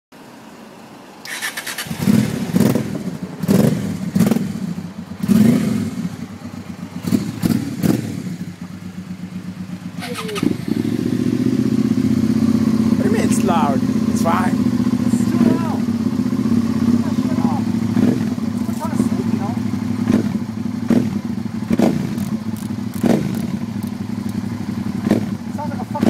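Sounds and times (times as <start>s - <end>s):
electric starter cranking: 1.2s - 2.4s, 22.2s - 24.4s
motorcycle engine revving and idling: 1.3s - 26.0s.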